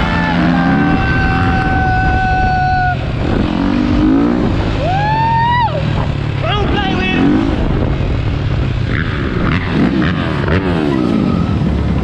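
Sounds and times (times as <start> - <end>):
dirt bike engine revving: 0.0 - 12.0
rumble of other bikes: 0.0 - 12.0
wind on microphone: 0.9 - 5.0, 6.0 - 10.2.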